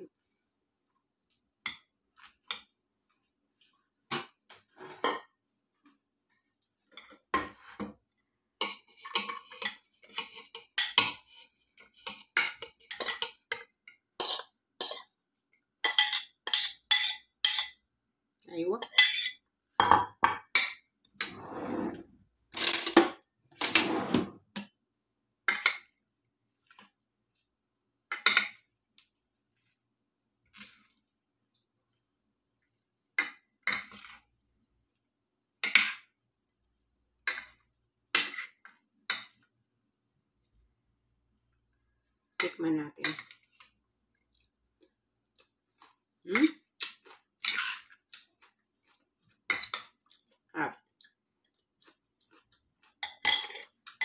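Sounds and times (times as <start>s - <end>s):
spoons clinking on ceramic: 12.0s - 15.1s, 15.8s - 17.8s, 18.8s - 20.8s, 53.0s - 54.0s.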